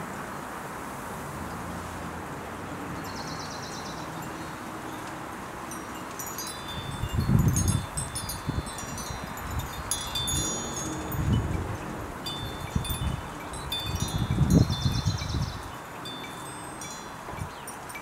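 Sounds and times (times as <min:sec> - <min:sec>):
wind chimes tinkling: 0:03.0 - 0:18.0
wind buffeting microphone: 0:06.4 - 0:17.8.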